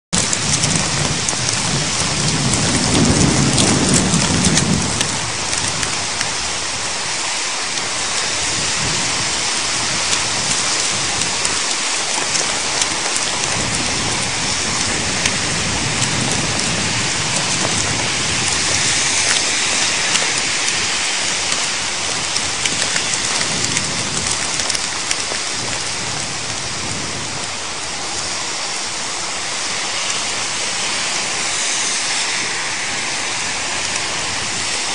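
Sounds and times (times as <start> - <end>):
heavy rain and hail: 0.1 - 34.9
thunder rumbling: 0.2 - 34.9.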